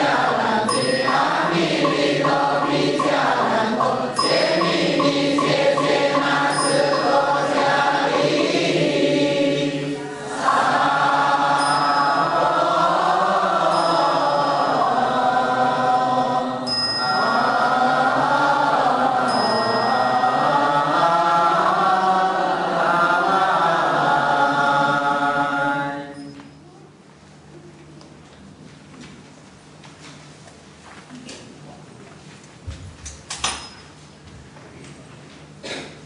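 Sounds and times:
group of voices chanting: 0.0 - 26.1.

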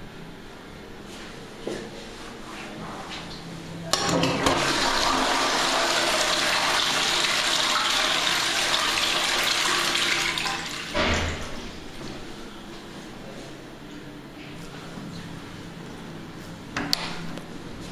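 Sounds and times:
water rushing into toilet bowl: 4.0 - 11.2.

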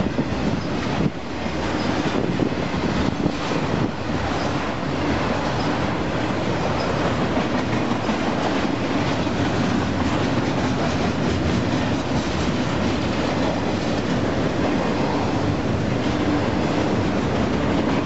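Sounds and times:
clickety-clack over rail joints: 0.0 - 18.0
steel wheels rumbling on rail: 0.0 - 18.0.

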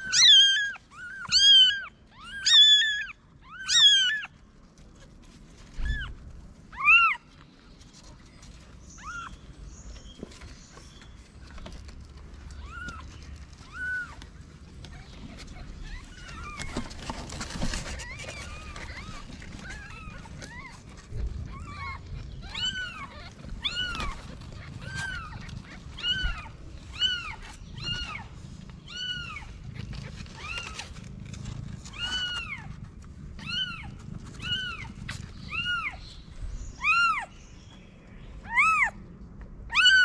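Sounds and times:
newborn kittens mewing: 0.0 - 4.4, 5.7 - 7.3, 12.4 - 31.1, 31.8 - 36.1, 36.8 - 37.4, 38.4 - 39.0, 39.7 - 40.0
brief rustle: 7.3 - 35.8.

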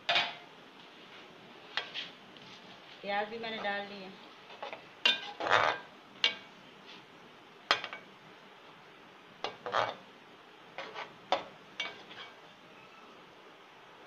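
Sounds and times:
metal spoon scraping a pan: 1.7 - 2.2, 3.4 - 7.0, 9.4 - 10.0, 10.8 - 12.5.

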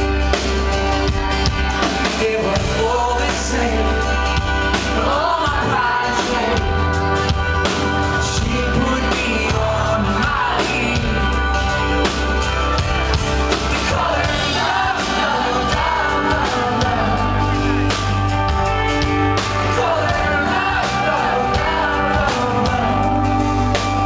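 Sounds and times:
drums: 0.0 - 24.0
heavy bass: 0.0 - 24.0
strummed acoustic guitar: 0.0 - 24.0
man singing: 1.8 - 7.1, 8.0 - 12.0, 13.5 - 18.3, 19.6 - 24.0.

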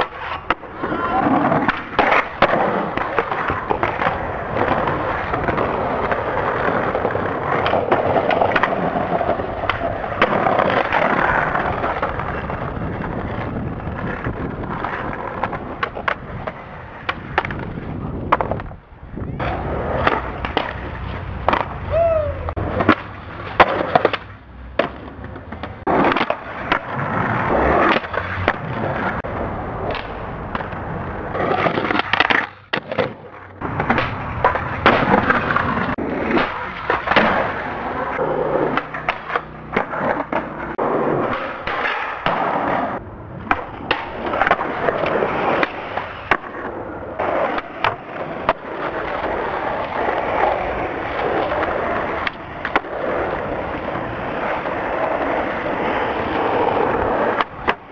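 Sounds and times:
skateboard tail clacks: 0.0 - 57.9
skateboards rolling on pavement: 0.0 - 57.9.

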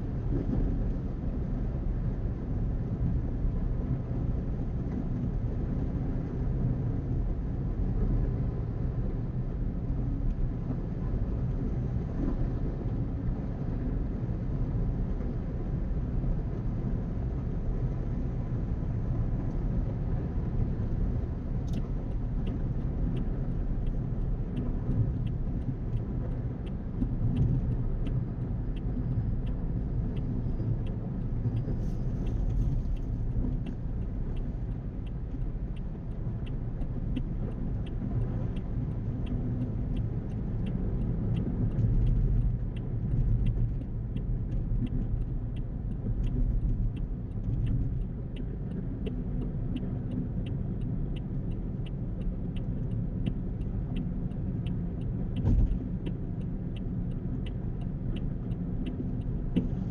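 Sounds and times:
car tyres and engine rumble: 0.0 - 59.9
faint regular tick: 19.4 - 59.9.

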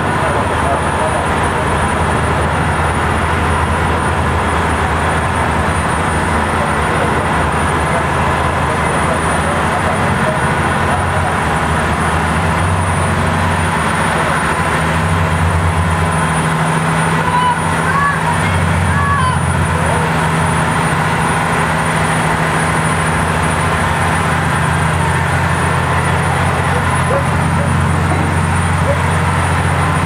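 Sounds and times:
boat engine drone: 0.0 - 30.0.

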